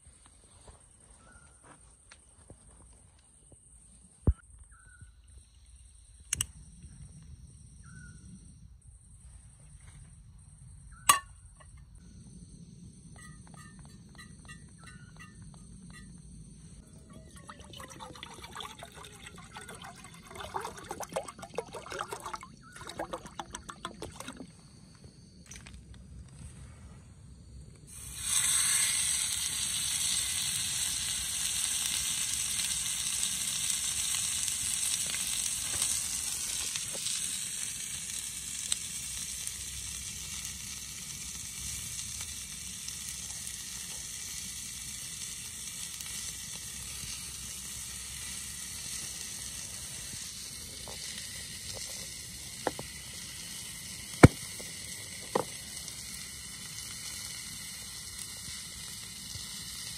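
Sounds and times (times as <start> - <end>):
sharp clicks: 6.2 - 6.6
steak sizzling in frying pan: 28.0 - 59.9.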